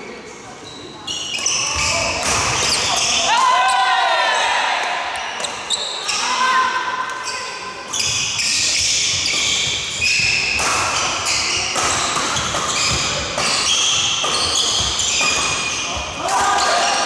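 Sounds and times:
shoes squeaking on wooden floor: 7.9s - 10.6s, 11.2s - 16.0s
racket hitting shuttlecock: 9.2s - 16.9s.

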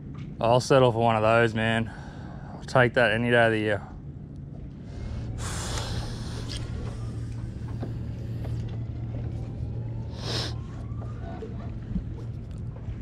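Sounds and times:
boat motor humming: 4.0s - 13.0s.

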